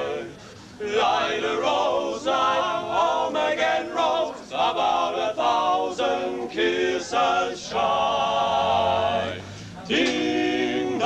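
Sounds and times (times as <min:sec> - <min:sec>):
young men singing together: 0:00.0 - 0:11.0.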